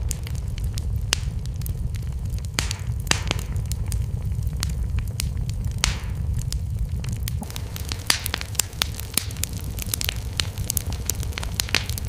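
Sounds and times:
wood fire crackling and popping: 0.0 - 12.0.

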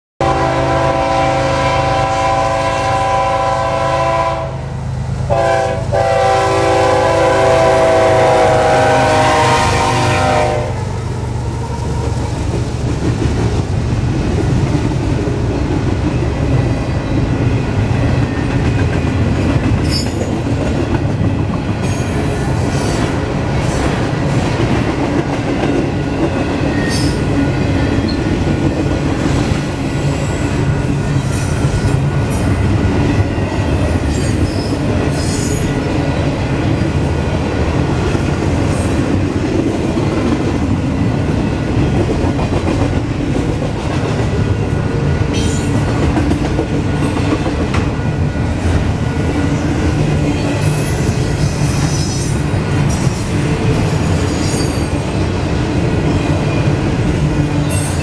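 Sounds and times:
locomotive air horn blasts: 0.2 - 4.7, 5.3 - 10.9
train wheels clattering on rails: 11.8 - 58.0.

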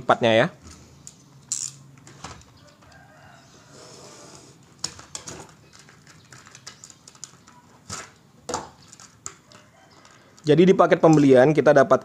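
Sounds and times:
plastic crackling as pried apart: 4.8 - 10.5.

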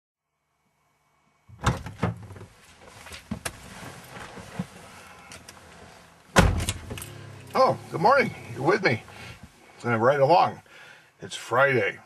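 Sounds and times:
thumps and knocks in car seat: 1.5 - 4.9.

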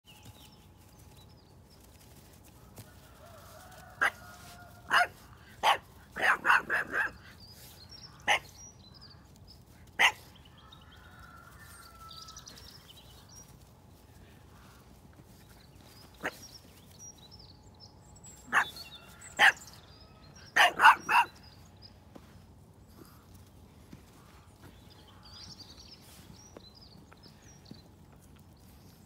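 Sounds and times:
puppy barking: 4.9 - 7.2, 10.0 - 10.3, 19.4 - 19.6, 20.6 - 21.4.

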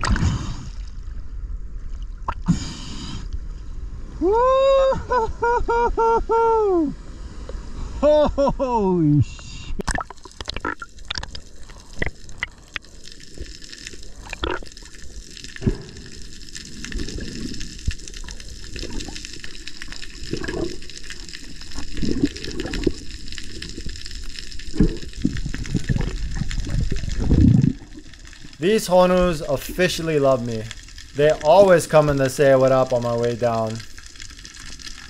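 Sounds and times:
underwater gurgling: 9.8 - 35.0.

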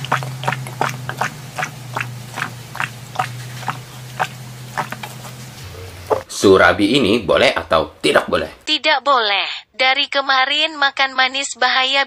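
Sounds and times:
wet gulping swallows: 0.0 - 6.3
steady low hum: 0.0 - 6.4.

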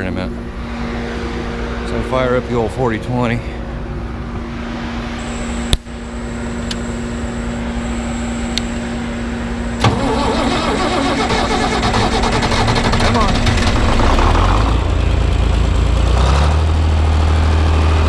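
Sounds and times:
steady hum: 0.0 - 13.6
tractor engine starting and running: 5.2 - 18.0.

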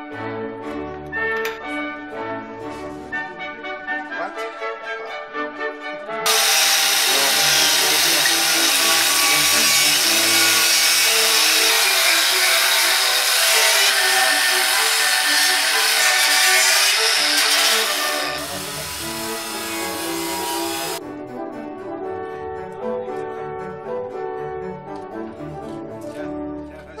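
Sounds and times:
angle grinder grinding metal: 6.3 - 21.0.

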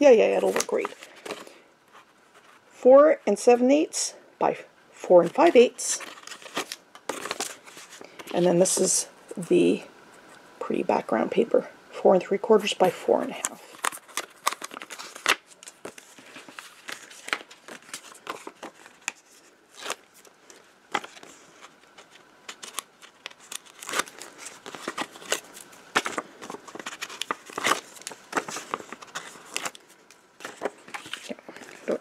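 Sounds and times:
paper and tape rustling: 0.3 - 2.7, 5.4 - 8.9, 13.4 - 32.0.

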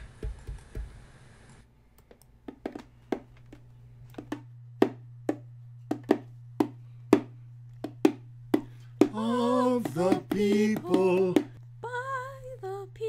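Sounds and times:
low steady hum: 0.0 - 13.0
frame drum struck by hand: 4.2 - 11.6.

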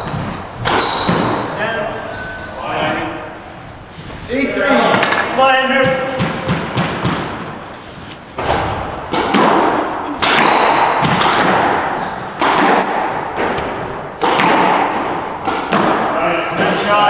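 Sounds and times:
squash ball hits: 0.0 - 1.6, 4.9 - 7.6, 8.3 - 16.7
sneakers squeaking on wooden floor: 0.0 - 5.0, 5.8 - 16.2.

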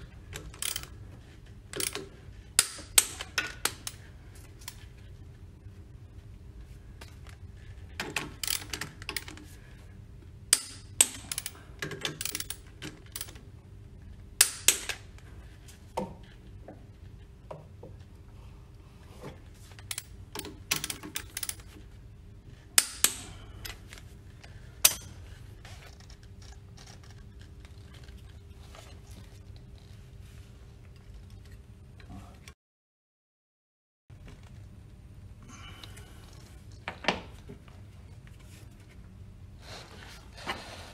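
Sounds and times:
faint steady hum: 0.0 - 32.6, 34.1 - 40.9
hand tools clicking on metal: 0.4 - 0.9, 1.8 - 4.0, 10.5 - 13.4, 19.8 - 21.7, 22.8 - 23.8, 24.8 - 25.2.

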